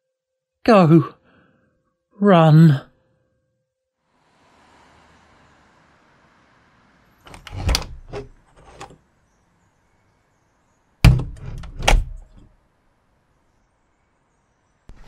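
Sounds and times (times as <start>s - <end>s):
double doors banging shut: 7.3s - 8.9s, 11.0s - 12.5s
door clicks and knocks: 7.3s - 9.0s, 11.0s - 12.5s.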